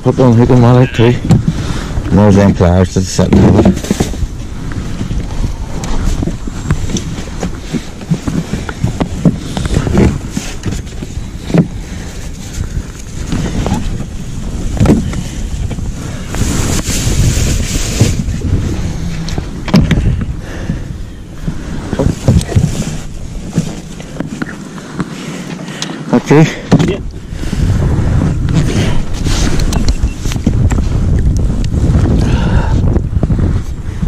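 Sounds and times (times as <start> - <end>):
wind buffeting microphone: 0.0 - 34.0
knocks and clicks of gear: 3.2 - 14.1, 14.7 - 16.4, 19.2 - 20.4, 21.4 - 26.0, 28.4 - 31.8
clothing rustling: 3.5 - 20.7.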